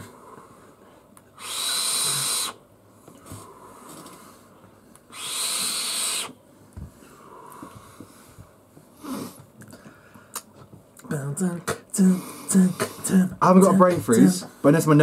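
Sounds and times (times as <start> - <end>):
heavy breathing: 3.2 - 5.9, 6.8 - 10.4, 11.6 - 14.6.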